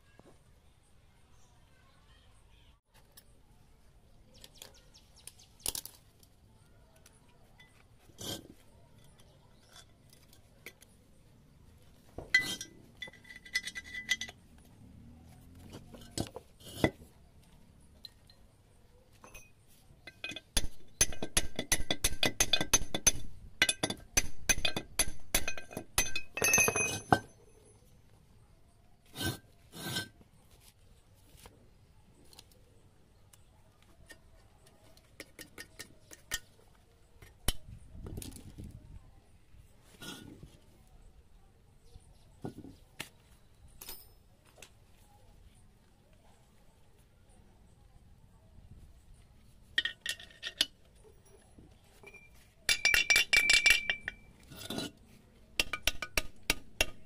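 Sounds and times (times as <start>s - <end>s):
metal tools clinking on metal: 12.2s - 14.6s, 15.7s - 17.0s, 19.2s - 28.0s, 43.8s - 44.3s, 49.8s - 55.0s.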